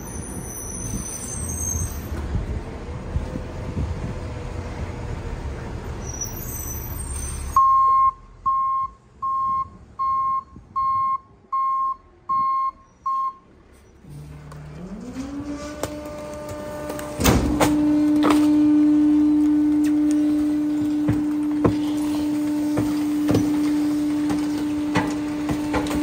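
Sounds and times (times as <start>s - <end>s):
truck engine rumbling: 0.0s - 26.0s
truck backup alarm beeping: 7.4s - 15.0s, 16.0s - 25.7s.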